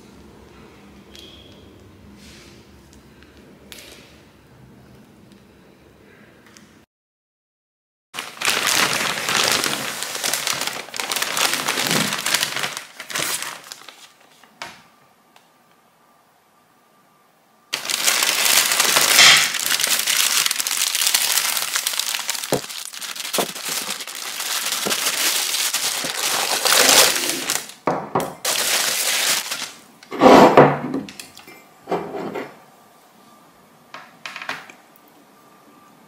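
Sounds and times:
plastic wrapping crinkling: 8.2s - 14.6s, 17.7s - 27.8s, 28.4s - 29.8s.

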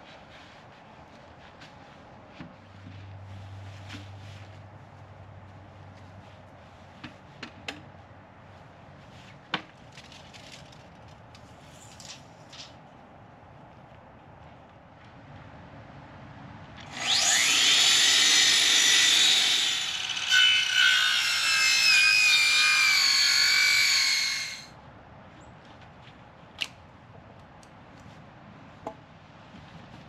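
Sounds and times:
power saw cutting wood: 16.8s - 24.7s.

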